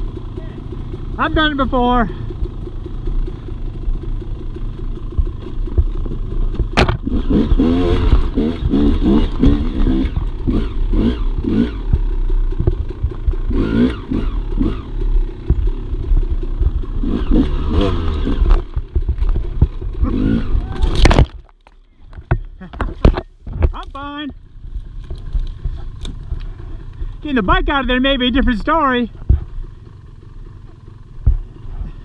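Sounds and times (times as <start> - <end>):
dirt bike engine revving: 0.0 - 21.1, 23.9 - 32.0
clatter: 2.2 - 27.2.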